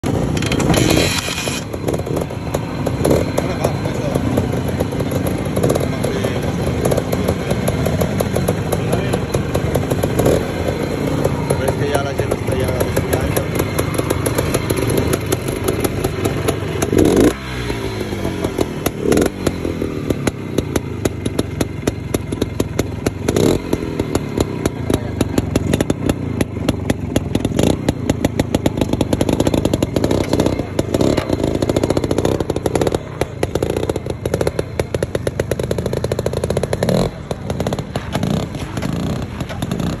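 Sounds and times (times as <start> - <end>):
two-stroke motorcycle engine revving: 0.0 - 40.0.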